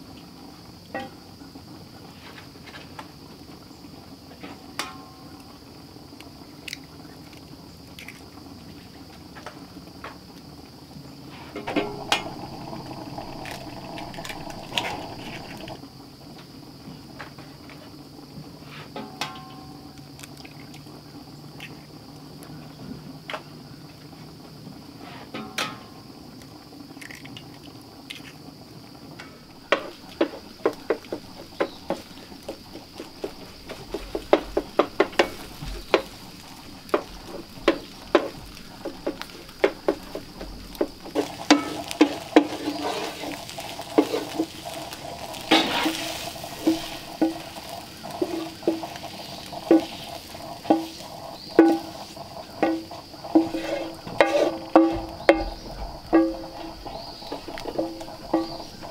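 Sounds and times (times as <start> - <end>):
eggs sizzling: 0.1 - 22.6, 24.5 - 58.9
utensil scraping and tapping skillet: 11.5 - 15.8, 29.2 - 58.9.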